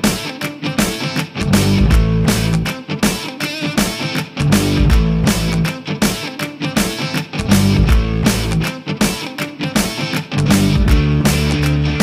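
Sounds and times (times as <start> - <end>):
rock music: 0.0 - 12.0
low bass notes: 1.4 - 2.7, 4.4 - 5.7, 7.4 - 8.6, 10.4 - 12.0.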